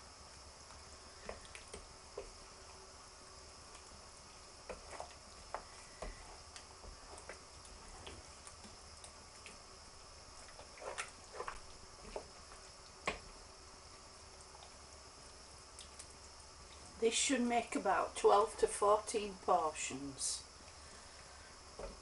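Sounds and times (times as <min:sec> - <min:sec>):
sauce bubbling in a pan: 0:00.0 - 0:17.0.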